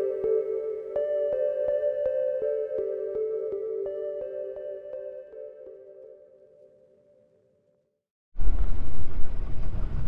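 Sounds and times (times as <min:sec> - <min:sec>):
ambient music with held tones: 0:00.0 - 0:07.8.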